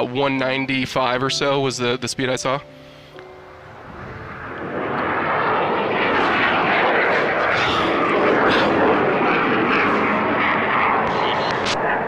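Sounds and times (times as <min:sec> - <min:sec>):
jet engine roar: 0:03.1 - 0:12.0.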